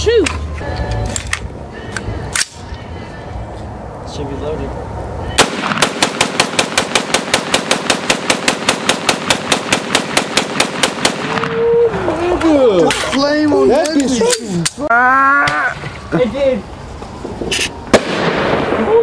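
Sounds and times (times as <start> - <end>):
rapid rifle gunshots: 5.4 - 11.4.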